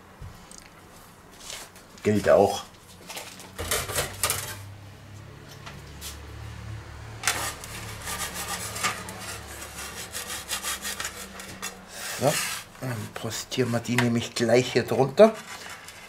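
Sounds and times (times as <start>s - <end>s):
metal peels scraping wooden board: 7.2s - 14.2s, 15.2s - 16.0s.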